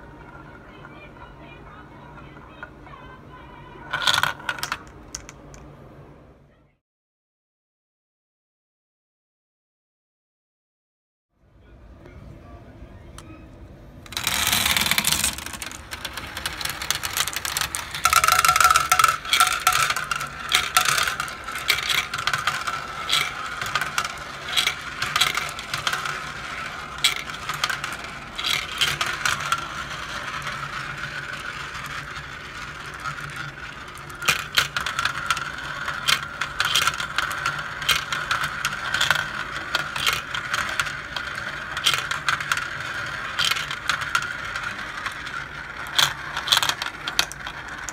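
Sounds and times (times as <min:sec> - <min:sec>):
marbles rolling on plastic track: 0:00.0 - 0:05.6, 0:14.0 - 0:47.9
marbles clicking together: 0:03.9 - 0:05.6, 0:14.1 - 0:47.9.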